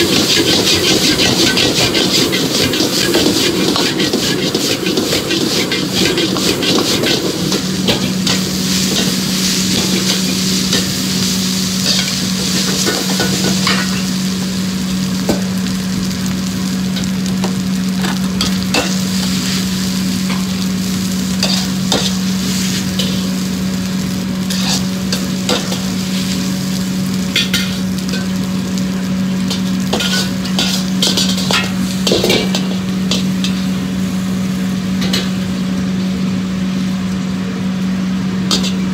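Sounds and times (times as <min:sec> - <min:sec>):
metal ladle scraping wok: 0:00.0 - 0:14.0, 0:21.4 - 0:23.4, 0:24.5 - 0:26.6, 0:27.3 - 0:28.4, 0:29.5 - 0:33.8, 0:38.5 - 0:38.9
rice sizzling in a wok: 0:00.0 - 0:38.9.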